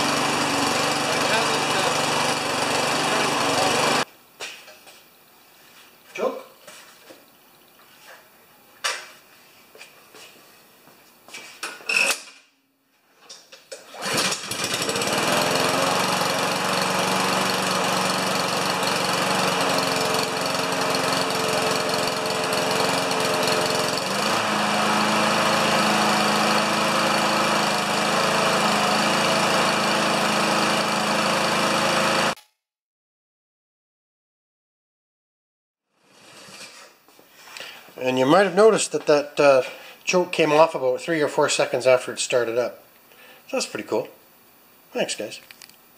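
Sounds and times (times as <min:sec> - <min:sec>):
lawn mower engine running: 0:00.0 - 0:04.1, 0:13.9 - 0:32.4.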